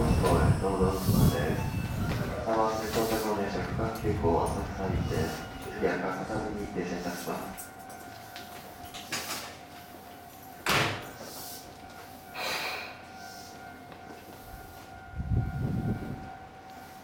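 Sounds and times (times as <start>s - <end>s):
electric train humming: 0.0s - 17.0s
train door slamming: 10.6s - 11.3s.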